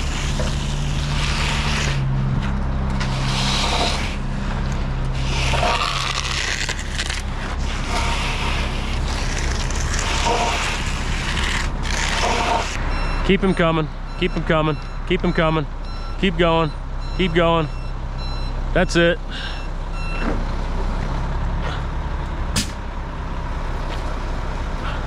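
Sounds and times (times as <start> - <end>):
float scraping wet concrete: 0.0 - 12.8
engine hum: 0.0 - 25.0.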